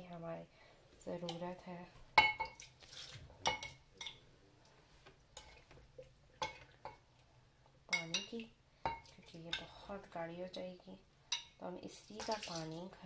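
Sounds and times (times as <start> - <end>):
water pouring: 2.6 - 3.3.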